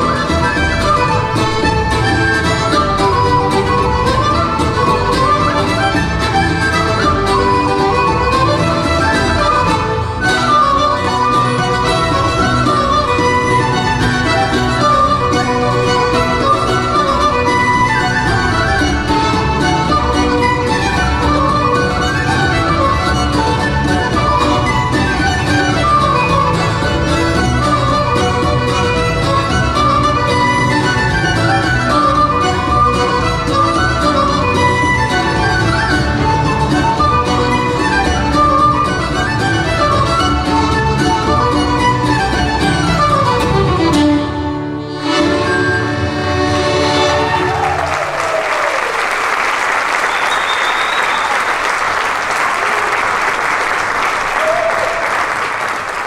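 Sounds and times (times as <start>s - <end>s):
acoustic guitar: 0.0s - 47.6s
bass guitar: 0.0s - 47.9s
harp: 0.0s - 48.7s
fiddle melody: 0.0s - 54.6s
audience applauding: 47.0s - 56.0s.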